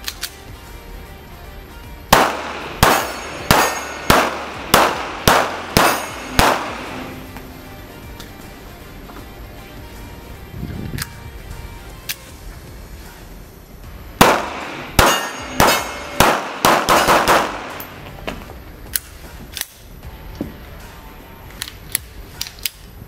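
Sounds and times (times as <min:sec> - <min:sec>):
metallic clicks of pistol handling: 0:00.0 - 0:00.4, 0:10.9 - 0:11.2, 0:12.0 - 0:12.4, 0:18.9 - 0:19.9, 0:21.5 - 0:23.0
pistol shots ringing: 0:02.1 - 0:07.4, 0:14.2 - 0:18.0.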